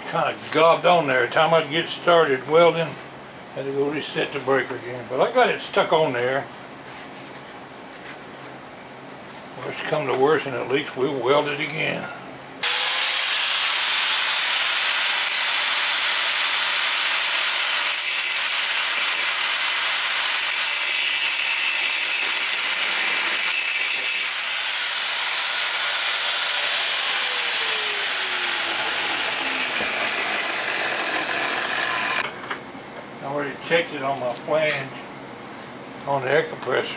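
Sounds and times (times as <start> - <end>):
disc grinder grinding metal: 12.6 - 32.3.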